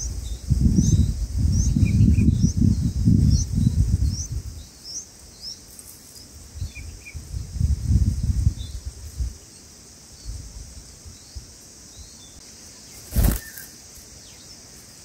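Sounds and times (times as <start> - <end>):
wind rumbling on microphone: 0.0 - 4.8, 6.4 - 9.4, 10.2 - 11.6
nestlings chirping: 0.0 - 7.3, 11.1 - 14.6
high insect buzz: 0.0 - 15.0.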